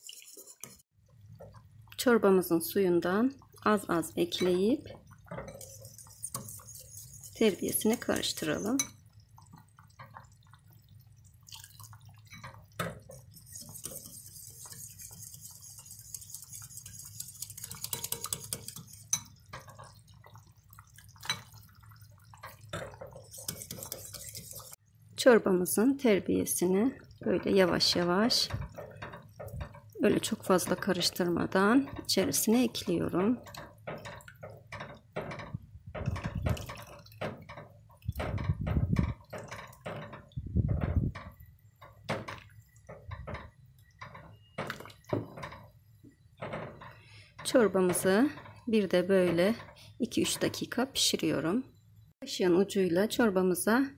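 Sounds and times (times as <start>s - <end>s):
whisk ticking and swishing: 0.0s - 2.0s, 3.4s - 24.9s
broth sloshing in a pot: 0.0s - 51.6s
small liquid splashes: 4.6s - 24.8s.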